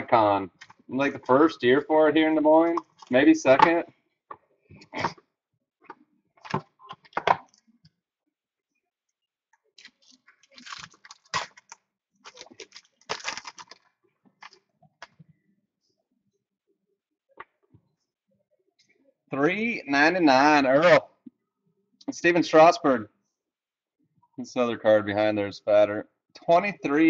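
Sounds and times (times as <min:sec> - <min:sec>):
foil crinkling: 0:09.8 - 0:14.6.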